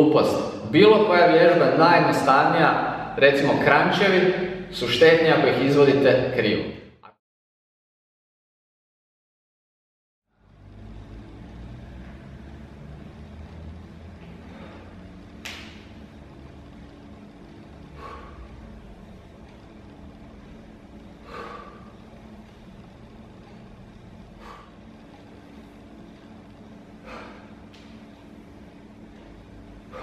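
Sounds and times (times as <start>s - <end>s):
steady low hum: 0.0s - 6.7s, 10.3s - 30.0s
person breathing hard through nose: 14.3s - 15.2s, 17.8s - 19.0s, 21.0s - 22.5s, 24.2s - 25.8s, 26.9s - 27.8s.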